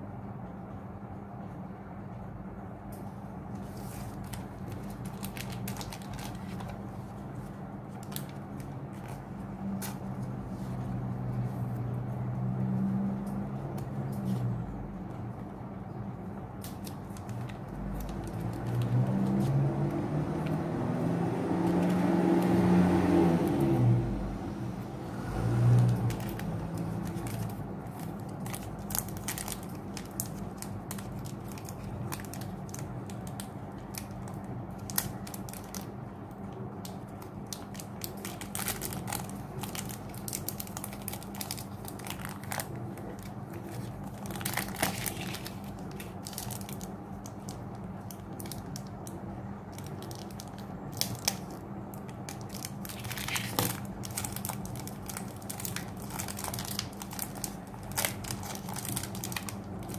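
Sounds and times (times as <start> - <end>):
foil wrapper crinkling: 3.6 - 10.2, 16.6 - 19.9, 25.7 - 59.9.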